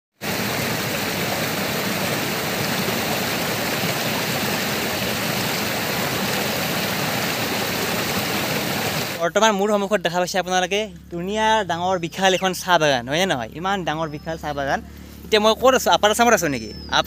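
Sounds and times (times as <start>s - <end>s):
stream splashing over rocks: 0.2s - 9.2s.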